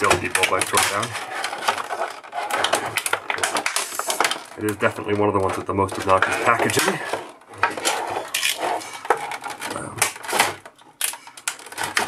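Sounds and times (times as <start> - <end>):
plastic packaging crackling: 0.0 - 12.0.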